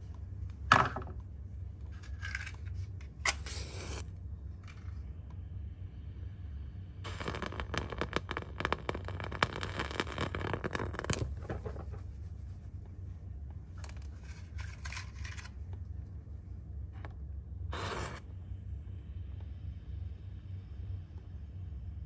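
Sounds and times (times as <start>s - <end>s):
steady low hum: 0.0s - 22.0s
burning match crackling: 3.3s - 4.1s, 7.0s - 11.8s, 17.7s - 18.3s
match striking scrape: 3.3s - 4.1s, 17.7s - 18.2s.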